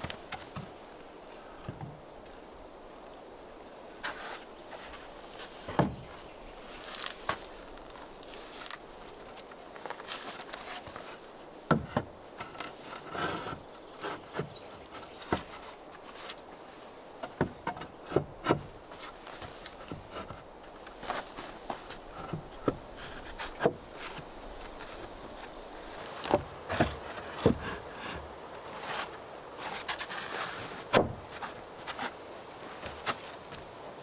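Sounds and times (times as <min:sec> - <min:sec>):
boards scraping: 0:04.0 - 0:16.5, 0:17.2 - 0:33.7
wooden planks knocking together: 0:05.6 - 0:06.2, 0:09.8 - 0:16.4, 0:17.2 - 0:28.2, 0:28.8 - 0:32.1.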